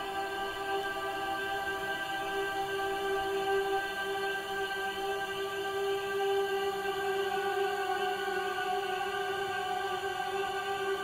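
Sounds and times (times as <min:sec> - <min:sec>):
choir-like drone: 0:00.0 - 0:11.0.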